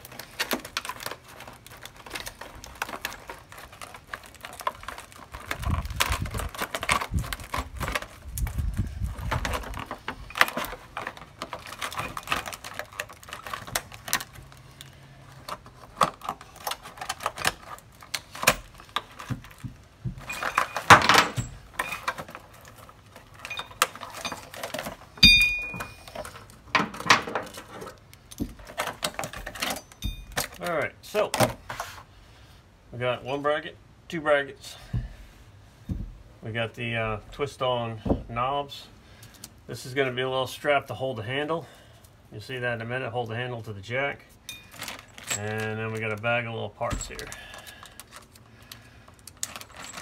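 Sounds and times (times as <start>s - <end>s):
packaging torn and crinkled: 0.0s - 20.7s, 21.6s - 25.2s, 47.2s - 50.0s
metal parts rattling: 0.0s - 30.8s, 44.4s - 46.2s, 46.8s - 50.0s
wind buffeting microphone: 7.1s - 9.6s.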